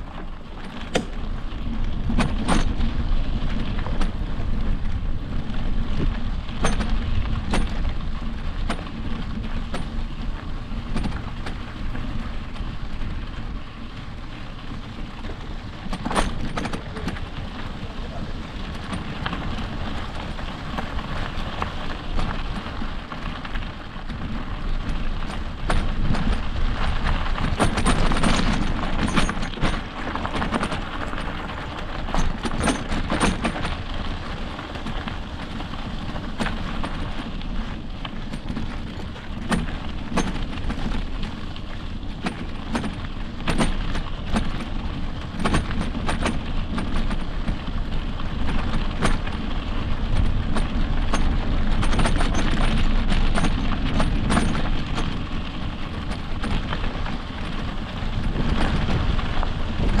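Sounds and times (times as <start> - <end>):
bike rattling over bumps: 0.0 - 60.0
tyres on dirt: 0.0 - 60.0
wind on microphone: 43.8 - 60.0.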